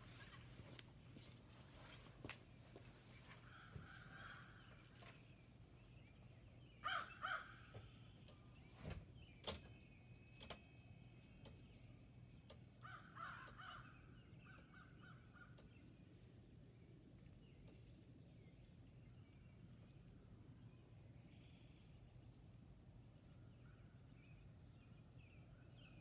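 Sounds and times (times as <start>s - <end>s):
faint crow caws: 3.2s - 5.2s, 6.8s - 8.0s, 12.8s - 15.8s.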